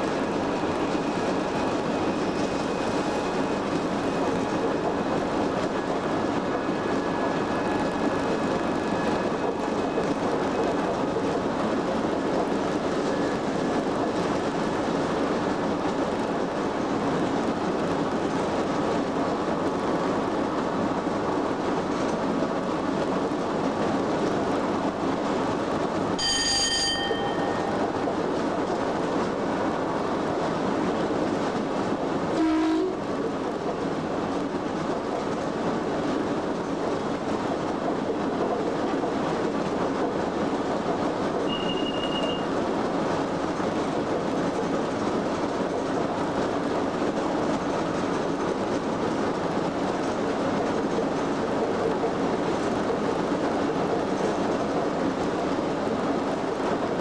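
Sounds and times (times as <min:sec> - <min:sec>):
train wheels on rails: 0:00.0 - 0:57.0
short high beep: 0:26.2 - 0:27.7, 0:41.5 - 0:42.5
short ringing tone: 0:26.2 - 0:27.8, 0:41.5 - 0:42.5.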